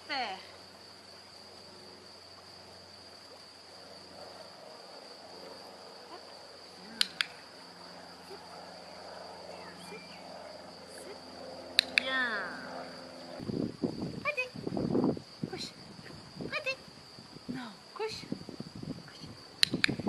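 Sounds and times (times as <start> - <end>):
crickets chirring: 0.0 - 20.0
sharp clicks: 6.9 - 7.5, 11.7 - 12.2, 19.6 - 20.0.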